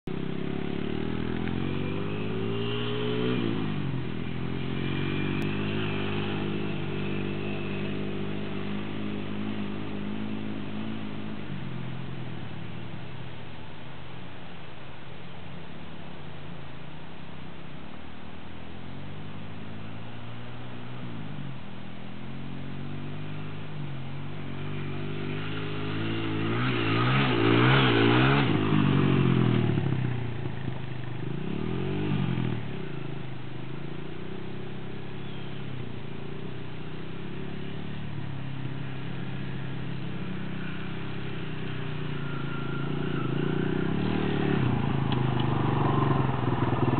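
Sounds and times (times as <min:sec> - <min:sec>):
dirt bike engine revving: 0:00.1 - 0:12.8, 0:22.3 - 0:30.6, 0:31.2 - 0:33.2, 0:33.8 - 0:46.9.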